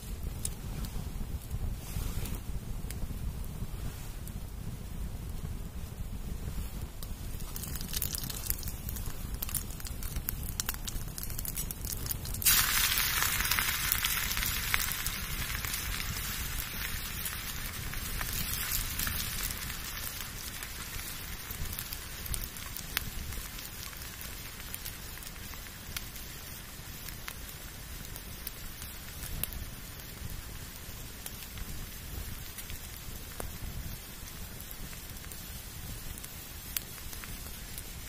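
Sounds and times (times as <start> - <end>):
campfire crackling: 0.0 - 38.0
pot sizzling: 10.6 - 22.6.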